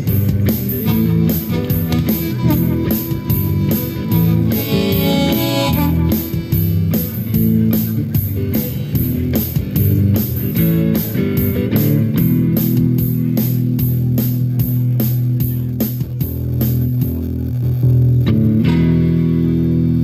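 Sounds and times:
steady beat and bass line: 0.0s - 20.0s
electric guitar solo: 0.7s - 7.0s.

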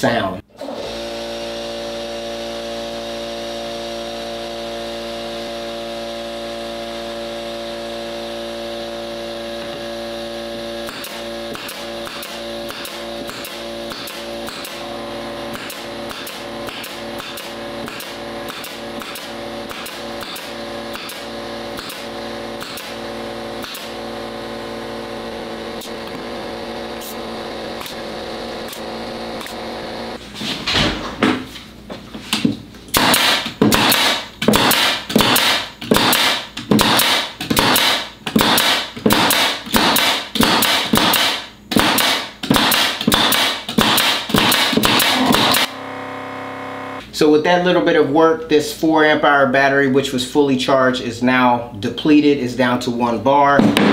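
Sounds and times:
nail gun firing into wood: 10.8s - 14.9s, 15.5s - 23.0s, 23.6s - 24.0s, 32.9s - 45.7s, 53.6s - 53.9s.

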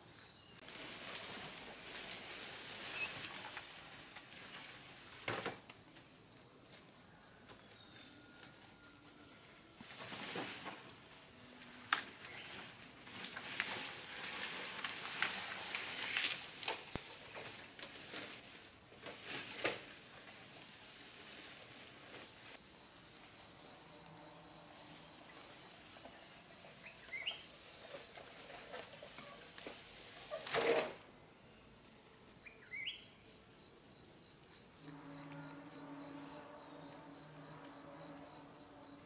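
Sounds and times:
rustles in leaves: 0.1s - 5.6s, 9.8s - 22.6s, 24.8s - 31.1s
high-pitched insect drone: 0.4s - 4.1s, 32.3s - 39.0s.

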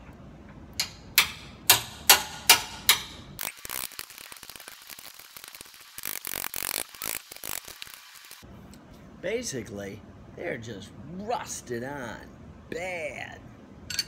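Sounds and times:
ratchet clicking: 3.4s - 8.4s.

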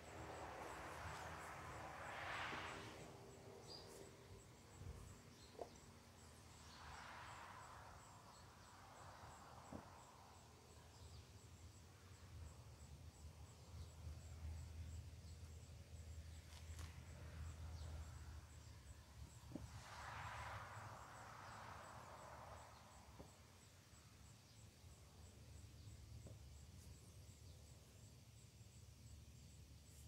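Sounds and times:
low hum: 0.0s - 8.7s.

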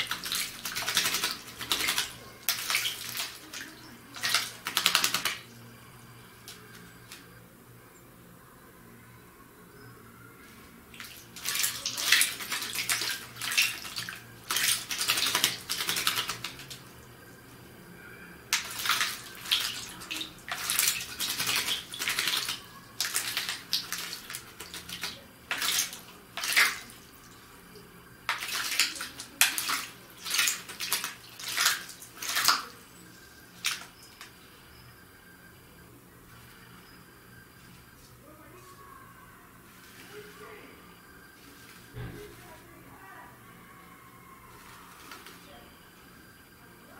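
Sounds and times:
bird splashing in water: 0.0s - 5.6s, 10.9s - 17.0s, 18.5s - 27.4s, 28.2s - 32.8s, 33.6s - 34.2s.

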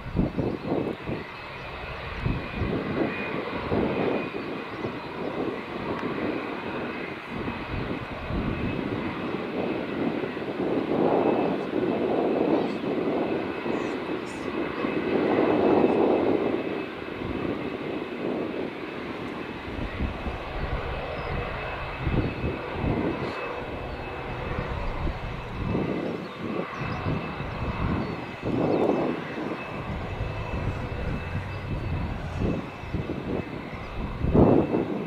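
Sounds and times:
jet engines running: 0.0s - 35.0s
low rumble: 26.9s - 34.5s.

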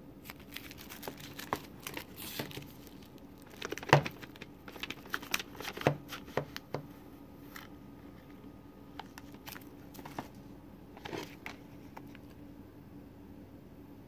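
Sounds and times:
plastic shrink wrap crinkling: 0.2s - 6.8s, 9.0s - 10.4s, 11.0s - 12.3s.

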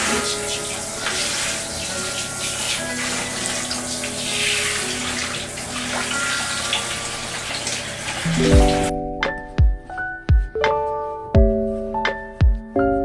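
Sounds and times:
shower water spraying: 0.0s - 8.9s.

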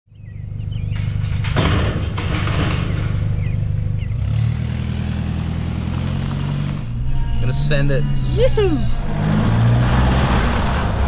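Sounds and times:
bird chirps: 0.1s - 1.2s, 3.3s - 4.3s
truck engine idling: 0.2s - 4.3s
metal gate clattering: 0.9s - 3.6s.

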